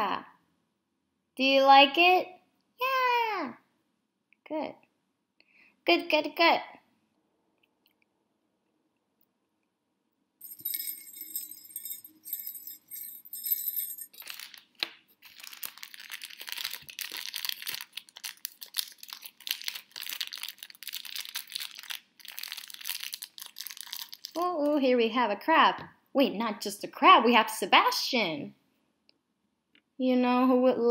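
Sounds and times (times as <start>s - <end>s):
tiny jingle bell ringing: 10.4s - 14.6s
wrapping paper crinkling and tearing: 14.1s - 24.4s.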